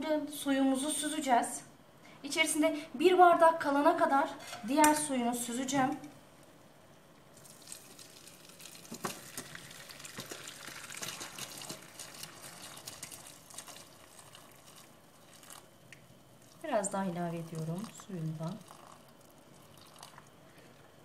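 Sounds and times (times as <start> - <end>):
water pouring into colander: 7.4 - 15.7, 17.4 - 20.3.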